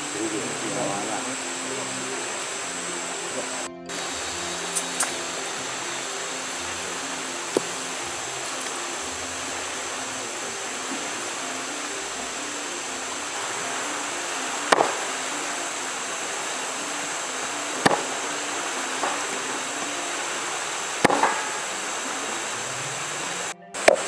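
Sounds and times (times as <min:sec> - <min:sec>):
steady background hiss: 0:00.0 - 0:24.0
machete chopping bamboo: 0:21.0 - 0:21.4.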